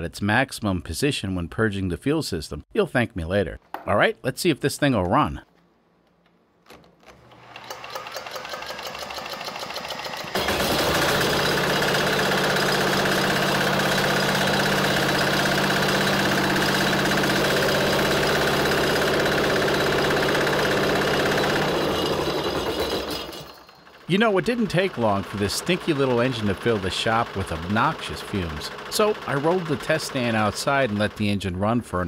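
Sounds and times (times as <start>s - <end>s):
cordless drill whining: 7.0s - 24.1s
diesel engine running: 10.4s - 22.7s.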